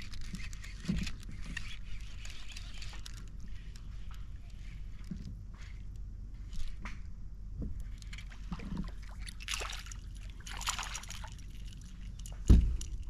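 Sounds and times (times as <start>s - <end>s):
fish splashing at water surface: 8.5s - 11.7s.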